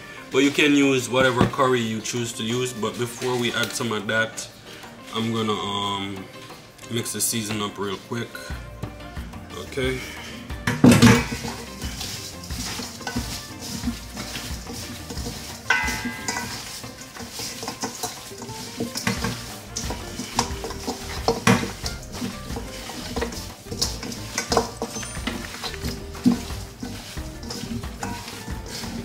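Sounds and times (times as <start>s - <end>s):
knocks and clinks on metal bowl: 10.7s - 11.7s, 12.7s - 29.0s
squishing raw chicken: 11.2s - 29.0s.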